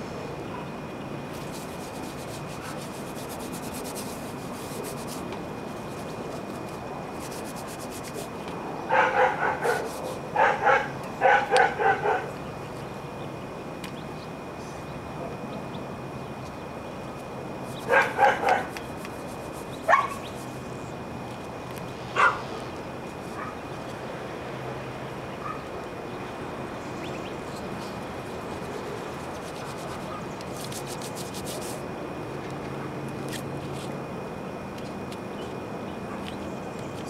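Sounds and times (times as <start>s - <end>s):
dog barking: 8.9s - 12.3s, 17.9s - 18.7s, 19.9s - 20.2s, 22.2s - 22.4s, 25.4s - 25.6s.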